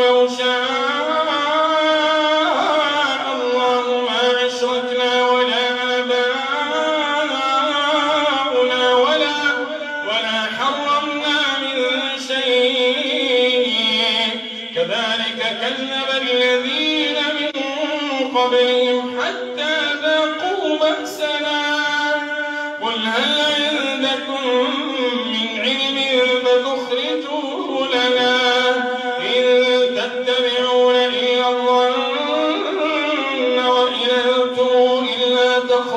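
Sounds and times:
man chanting into microphone: 0.0s - 35.9s.

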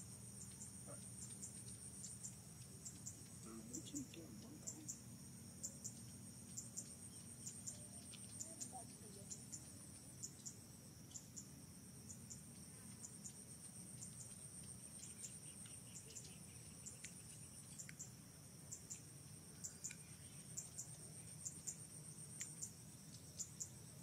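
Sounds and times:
insect double chirp: 0.0s - 24.0s
insect high trill: 0.0s - 24.0s.

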